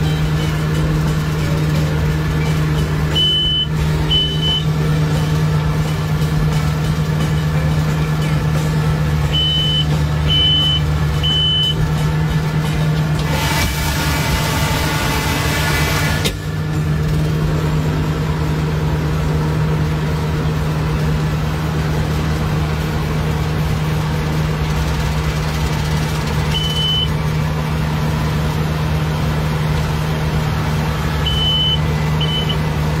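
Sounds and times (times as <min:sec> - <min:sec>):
harvester engine droning: 0:00.0 - 0:33.0
short high electronic beeps: 0:02.4 - 0:04.8, 0:09.2 - 0:11.8, 0:26.5 - 0:27.1, 0:31.2 - 0:32.6.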